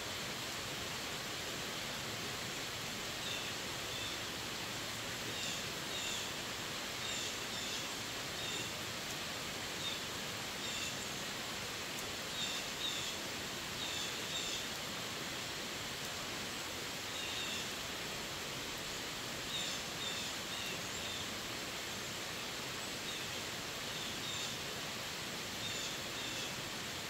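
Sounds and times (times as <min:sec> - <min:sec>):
steady rain on foliage: 0:00.0 - 0:27.0.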